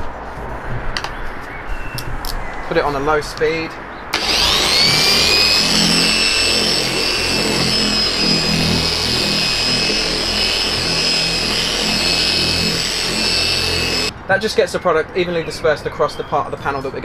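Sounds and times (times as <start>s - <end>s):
electric polisher whine: 4.2s - 14.1s.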